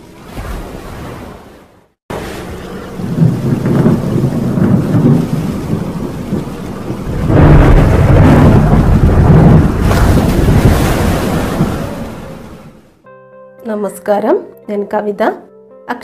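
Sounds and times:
steady rain: 2.1s - 12.9s
thunder rumbling: 2.1s - 13.0s.

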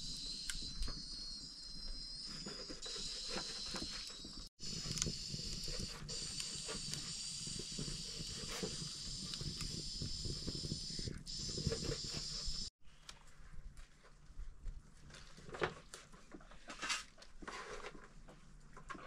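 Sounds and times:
pressure cooker hissing steam: 4.6s - 12.7s.

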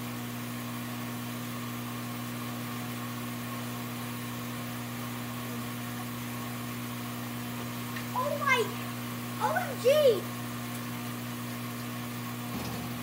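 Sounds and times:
motor humming: 7.2s - 13.0s.

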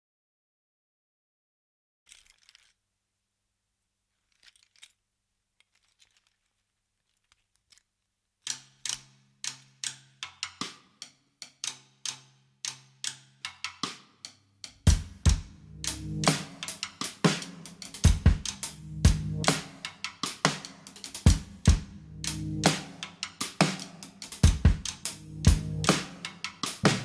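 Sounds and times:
cymbals: 15.0s - 27.0s
sharp dry clicking strokes: 15.9s - 18.8s, 19.4s - 27.0s.

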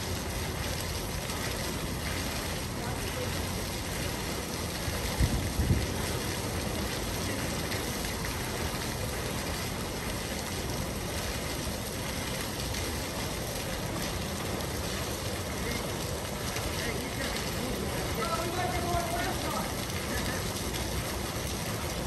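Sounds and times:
fountain water splashing: 0.0s - 22.0s.

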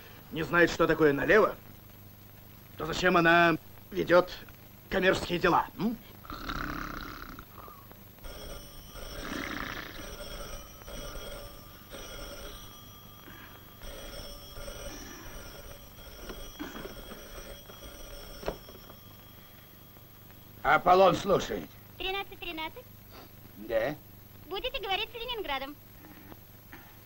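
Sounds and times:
rotary telephone ringing: 8.2s - 21.7s.

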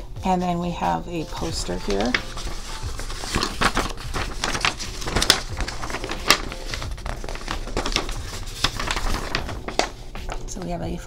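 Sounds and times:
paper poster rustling: 1.1s - 11.0s.

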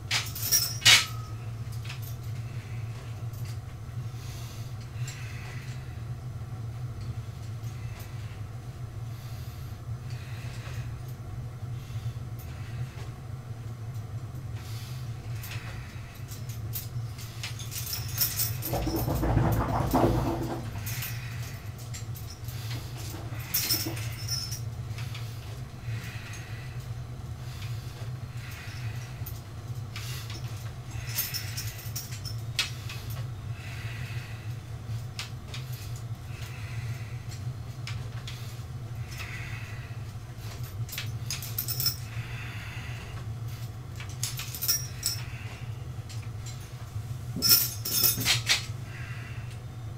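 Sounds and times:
steady low hum: 0.0s - 49.9s
barbell metallic clicks and rattles: 18.6s - 20.9s.

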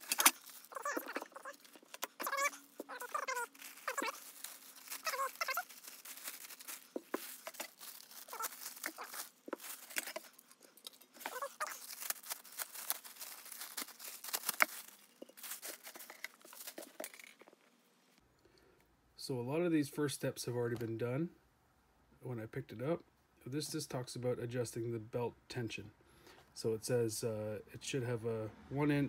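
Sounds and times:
plastic packaging crinkling and tearing: 0.0s - 17.6s.

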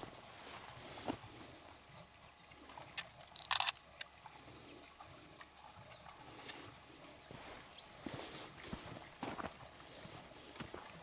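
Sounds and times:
camera handling clicks: 3.4s - 3.8s.

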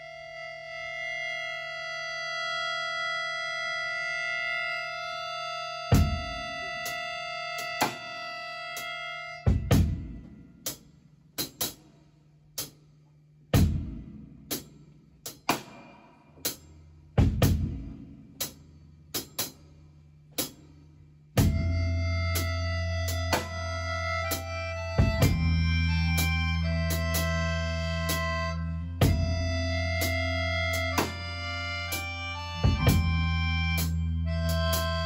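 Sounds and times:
drum kit hits: 9.5s - 10.3s, 17.2s - 18.0s
rock band playing: 32.6s - 33.2s.

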